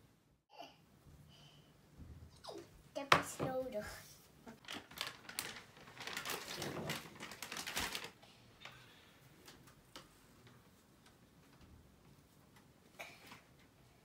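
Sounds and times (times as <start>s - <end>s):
plastic wipe packet crinkling: 4.5s - 8.2s.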